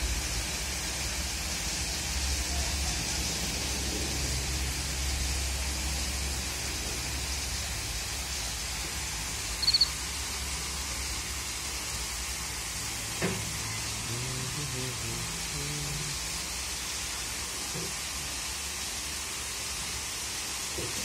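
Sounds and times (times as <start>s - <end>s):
water splashing down waterfall: 0.0s - 21.0s
high-pitched chirps: 9.6s - 10.0s.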